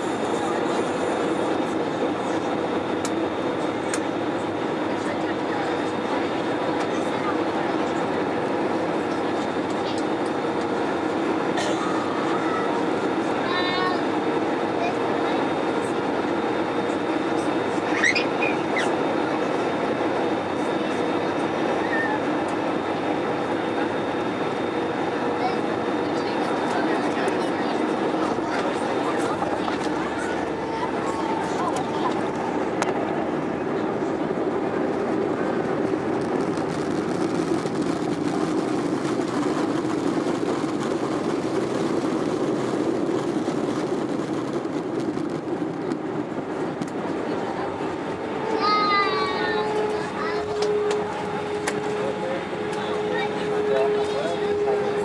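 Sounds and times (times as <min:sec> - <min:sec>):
aircraft cabin rush: 0:00.0 - 0:55.0
jet engines in reverse thrust: 0:00.0 - 0:55.0
airframe rumbling and rattling: 0:34.5 - 0:47.1.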